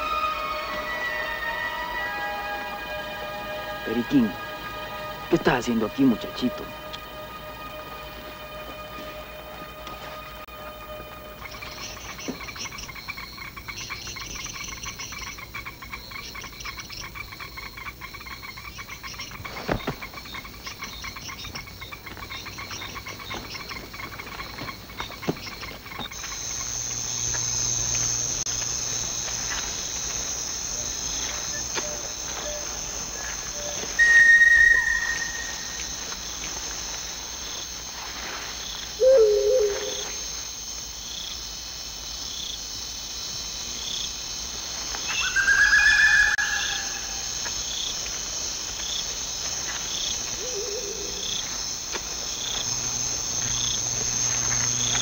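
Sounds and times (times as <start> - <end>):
crickets trilling: 0.0 - 55.0
whistle-like calls: 33.5 - 35.8.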